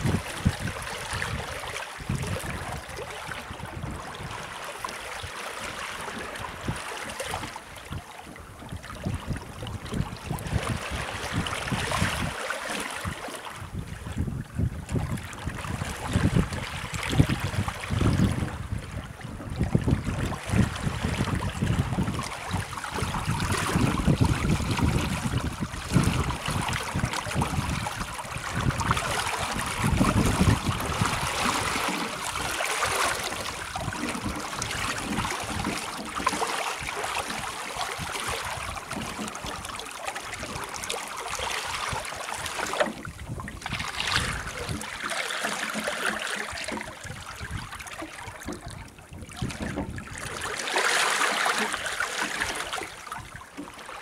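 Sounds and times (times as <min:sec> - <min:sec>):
wind buffeting microphone: 0:00.0 - 0:04.5, 0:08.3 - 0:12.4, 0:13.0 - 0:39.7, 0:41.7 - 0:45.0, 0:46.4 - 0:50.4
water rushing past boat: 0:00.0 - 0:54.0.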